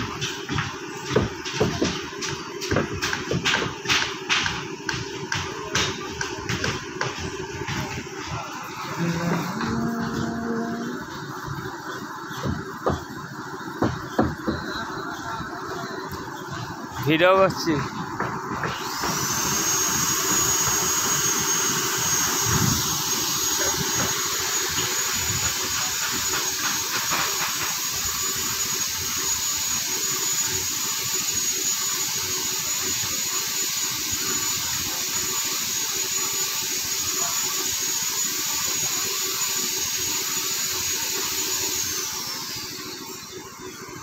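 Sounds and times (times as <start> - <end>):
high-speed motor whining: 8.7 - 12.0, 18.6 - 26.4.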